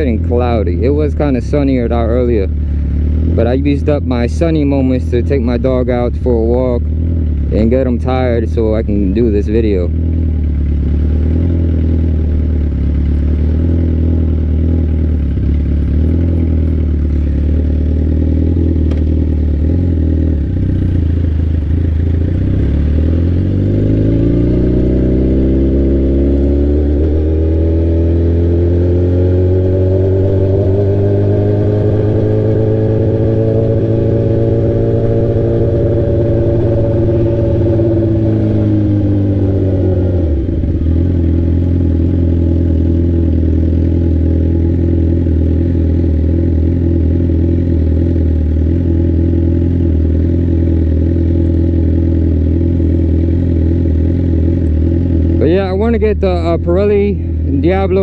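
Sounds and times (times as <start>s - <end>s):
sport bike engine accelerating: 0.0s - 58.0s.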